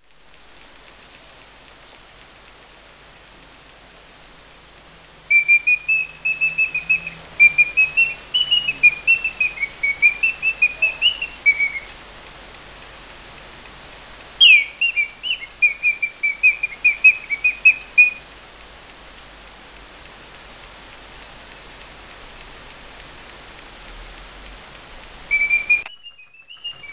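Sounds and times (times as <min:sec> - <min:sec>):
mechanical singing bird chirping: 0:05.3 - 0:11.9, 0:14.4 - 0:18.2, 0:25.3 - 0:26.9.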